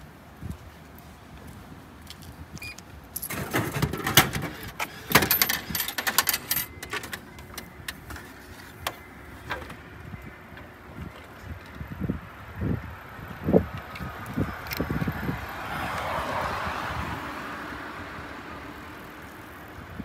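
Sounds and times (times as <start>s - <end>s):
can clanking through vending machine: 3.2s - 8.2s.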